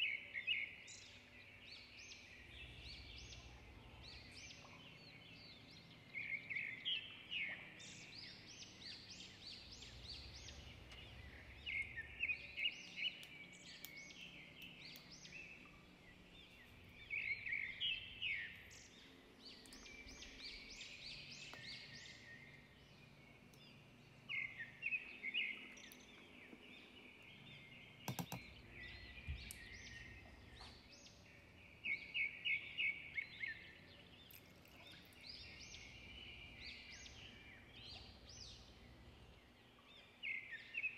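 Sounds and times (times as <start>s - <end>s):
low steady hiss: 0.0s - 40.9s
small birds chirping: 0.0s - 40.9s
sharp click: 28.1s - 28.5s.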